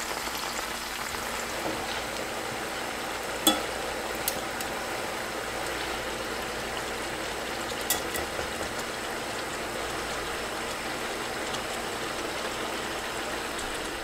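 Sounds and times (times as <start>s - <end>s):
shrimp sizzling in oil: 0.0s - 14.0s
tongs clicking against pan: 3.4s - 4.7s, 7.9s - 8.3s.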